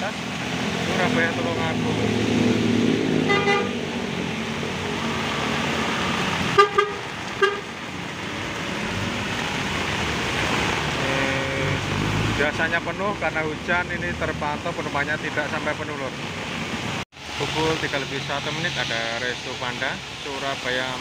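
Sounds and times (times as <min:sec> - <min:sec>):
heavy rain: 0:00.0 - 0:21.0
vehicle horn toots: 0:03.2 - 0:03.8, 0:06.5 - 0:07.7
wet road hiss: 0:03.7 - 0:21.0.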